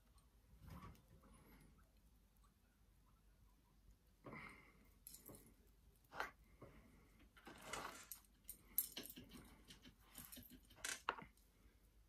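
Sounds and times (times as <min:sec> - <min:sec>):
wire handling rustles: 0:05.0 - 0:11.4.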